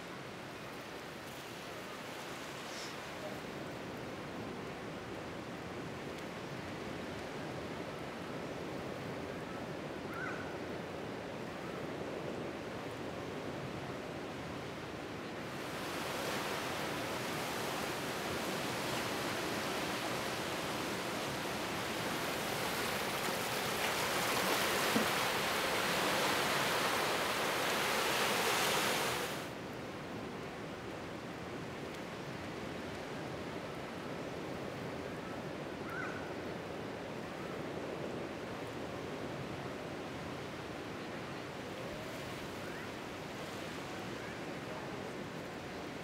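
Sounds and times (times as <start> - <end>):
ocean waves breaking: 15.4 - 29.6.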